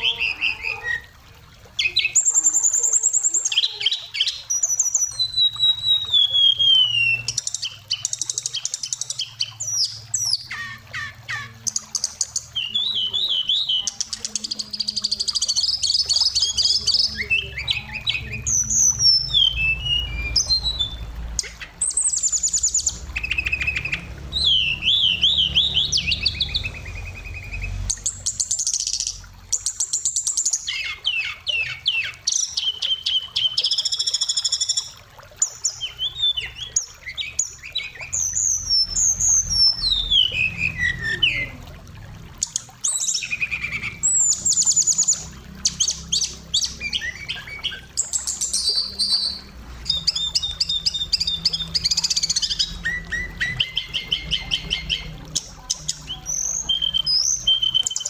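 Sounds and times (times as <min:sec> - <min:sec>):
bird singing varied song: 0:01.8 - 0:41.6, 0:42.4 - 0:58.0
low steady rumble: 0:14.7 - 0:29.7.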